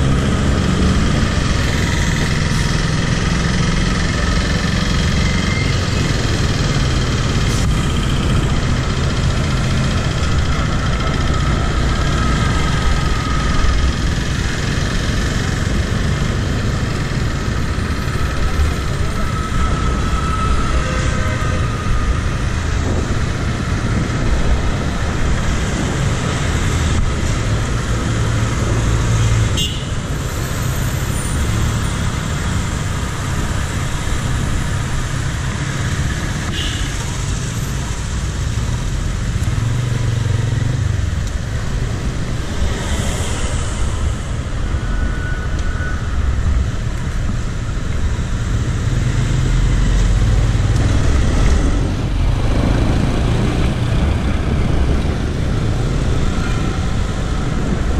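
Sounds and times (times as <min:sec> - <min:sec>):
cars and motorcycles passing: 0:00.0 - 0:57.9
heavy low traffic rumble: 0:00.0 - 0:57.9.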